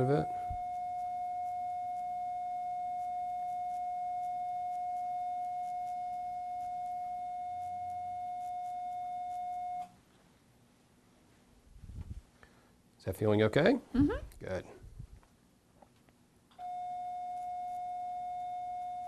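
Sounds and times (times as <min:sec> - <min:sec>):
steady mid-pitched beep tone: 0:00.0 - 0:09.9, 0:16.6 - 0:19.0.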